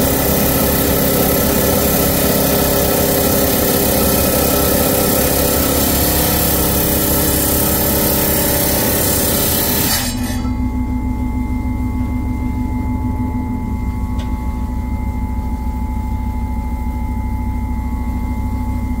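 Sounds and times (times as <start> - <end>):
saw blade grinding through stone: 0.0 - 10.6
saw motor humming and whining: 0.0 - 12.7.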